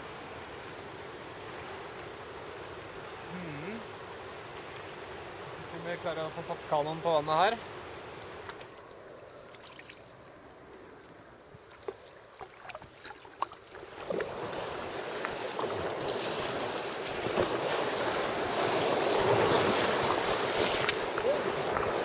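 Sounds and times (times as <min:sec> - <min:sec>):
rushing water: 0:00.0 - 0:22.0
canoe paddle strokes splashing: 0:11.5 - 0:22.0
wind on microphone: 0:14.0 - 0:22.0.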